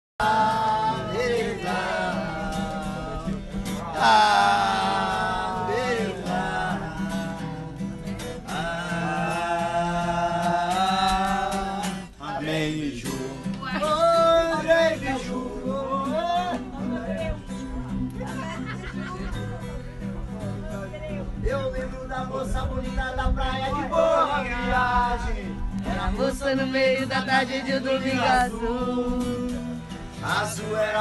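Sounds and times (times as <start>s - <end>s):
acoustic guitar strumming: 0.2s - 31.0s.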